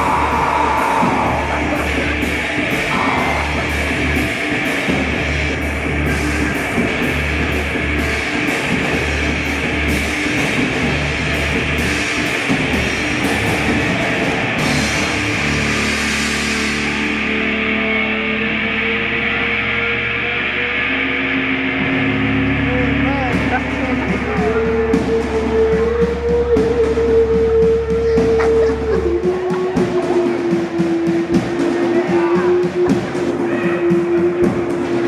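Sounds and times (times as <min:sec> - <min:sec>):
drum-kit beat: 0:00.0 - 0:17.2, 0:21.9 - 0:35.0
heavy rock music: 0:00.0 - 0:35.0.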